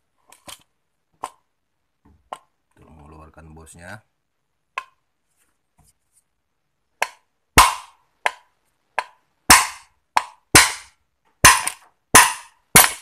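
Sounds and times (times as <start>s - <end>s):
hammer striking steel rod: 7.0s - 13.0s.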